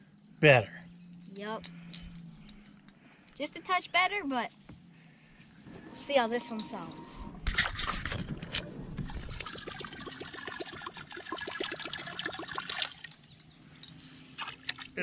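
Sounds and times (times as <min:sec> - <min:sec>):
lure gurgling across water: 0:09.0 - 0:13.0.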